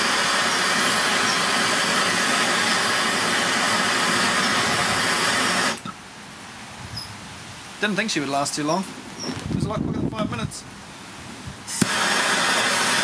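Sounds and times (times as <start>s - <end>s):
blowtorch flame hissing: 0.0s - 5.9s, 11.5s - 13.0s.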